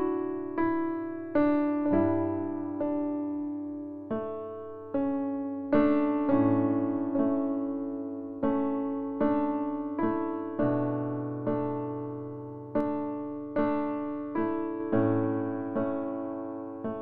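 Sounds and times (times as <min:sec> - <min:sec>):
soft keyboard chords: 0:00.0 - 0:17.0.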